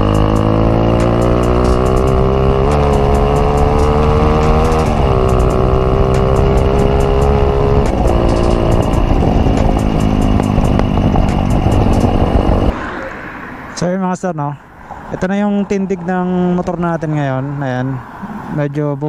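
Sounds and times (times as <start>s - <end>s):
motorcycle engine running: 0.0s - 12.8s.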